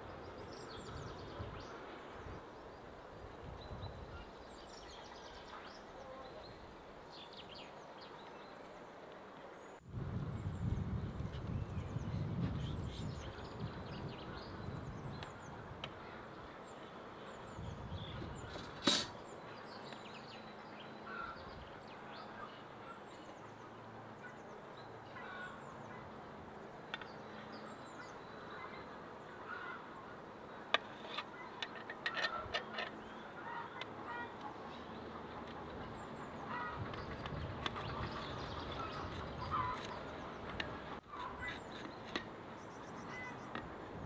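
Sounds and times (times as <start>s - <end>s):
birds chirping and calling: 26.9s - 43.8s.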